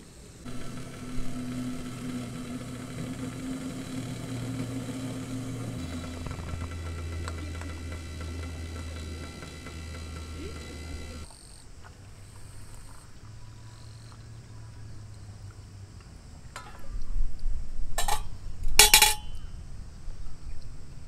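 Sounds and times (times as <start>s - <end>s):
gas stove burner running: 0.4s - 11.3s.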